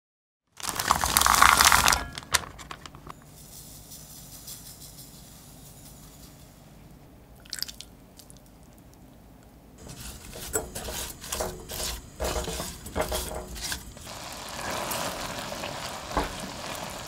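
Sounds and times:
frozen berries clattering into saucepan: 0.6s - 3.2s, 9.8s - 17.0s
sugar pouring hiss: 9.8s - 17.0s.

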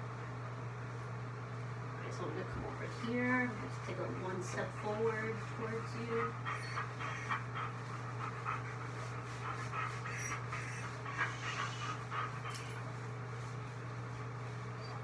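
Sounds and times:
steady low hum: 0.0s - 15.0s
dog panting: 2.9s - 13.7s.

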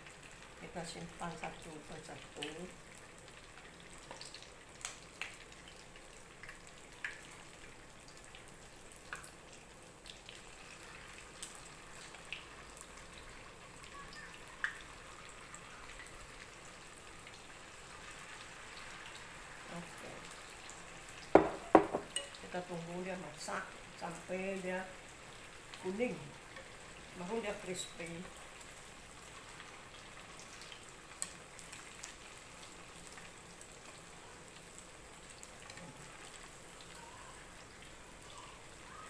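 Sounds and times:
food sizzling in oil: 0.0s - 39.0s.

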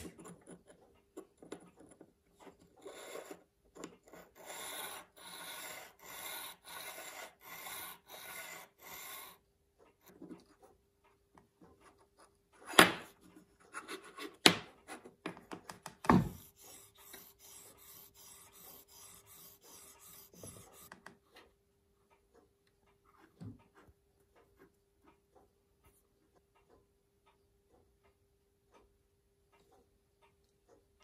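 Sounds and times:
vise scraping on metal plate: 2.8s - 9.4s, 16.2s - 21.0s.

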